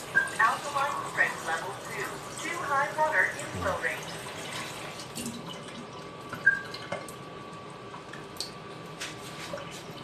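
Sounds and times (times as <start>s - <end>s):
water trickling into a glass: 3.3s - 7.3s.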